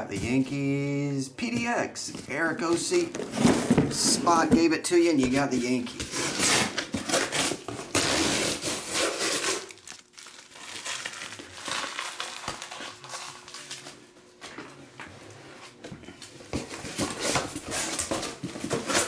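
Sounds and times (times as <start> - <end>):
plastic shrink wrap crinkling: 6.0 - 14.1.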